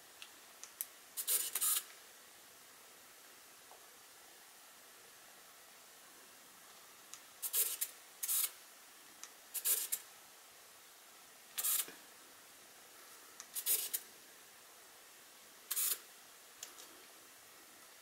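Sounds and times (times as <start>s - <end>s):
camera lens motor whirring: 1.2s - 1.9s, 11.6s - 11.9s, 15.7s - 16.0s.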